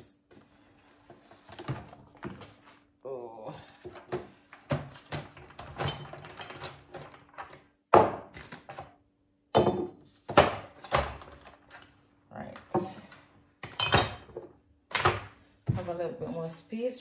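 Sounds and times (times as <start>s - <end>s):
kitchen items knocking on counter: 7.9s - 8.4s, 9.5s - 11.3s.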